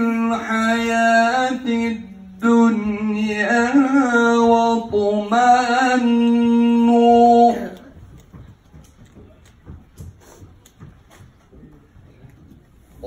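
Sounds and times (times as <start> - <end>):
man chanting melodically: 0.0 - 7.9.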